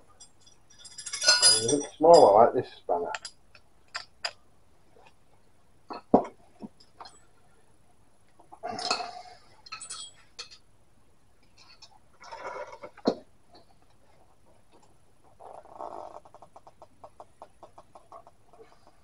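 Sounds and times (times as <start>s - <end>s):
spanner clinking on metal: 0.2s - 2.4s, 9.6s - 10.6s.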